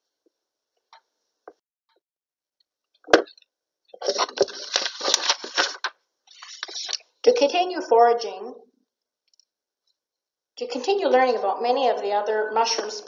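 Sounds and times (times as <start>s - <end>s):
rustling: 4.0s - 7.0s.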